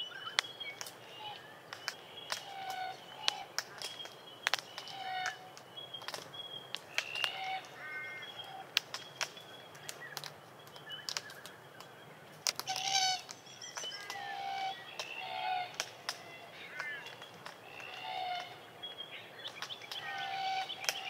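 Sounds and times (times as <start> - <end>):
cones cracking in birds' bills: 0.3 - 21.0
cockatoos calling softly: 13.9 - 18.7, 19.5 - 21.0.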